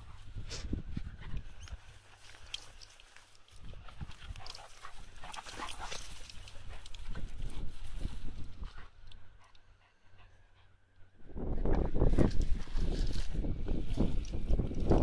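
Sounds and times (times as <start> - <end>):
low wind rumble: 0.0 - 2.9, 3.5 - 15.0
dogs scuffling in dry grass: 0.0 - 9.4, 11.9 - 15.0
dogs play growling: 3.7 - 10.8.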